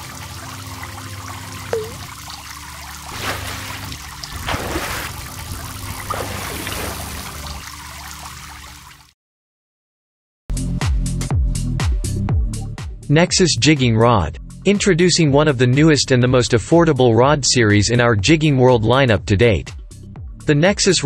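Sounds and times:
water splashing and gurgling: 0:00.0 - 0:09.1.

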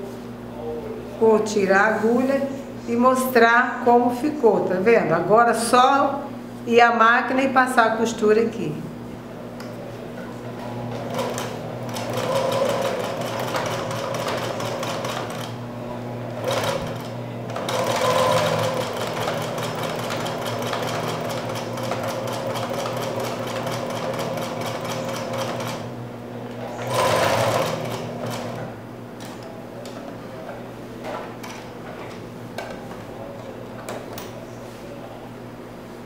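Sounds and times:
sewing machine stitching: 0:10.9 - 0:15.6, 0:16.4 - 0:25.9, 0:26.7 - 0:28.6.

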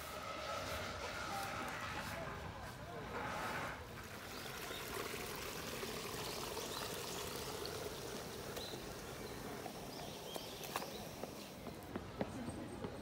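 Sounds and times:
water trickling into a pond: 0:03.8 - 0:11.8.

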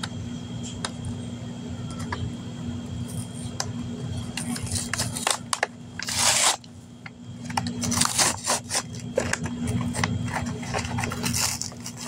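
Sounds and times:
packaging being torn: 0:04.5 - 0:06.7, 0:07.6 - 0:12.0.

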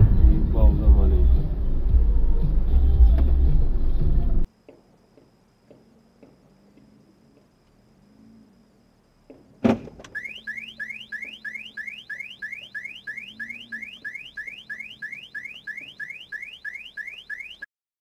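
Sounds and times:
cars bumping thump: 0:09.2 - 0:10.2
car alarm whooping: 0:10.1 - 0:17.7.

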